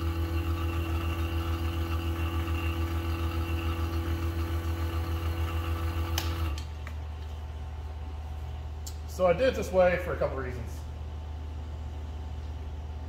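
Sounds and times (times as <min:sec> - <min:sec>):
vacuum pump pulsing hum: 0:00.0 - 0:08.8.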